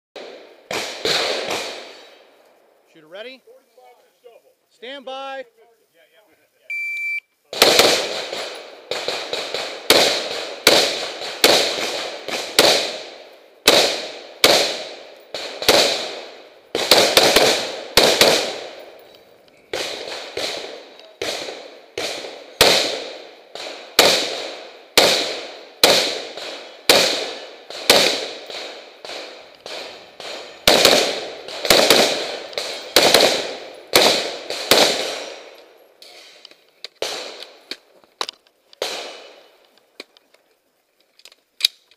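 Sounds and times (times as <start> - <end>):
rifle shots: 0.2 - 2.2, 7.5 - 19.0, 19.6 - 36.4, 37.0 - 37.7, 38.8 - 39.5.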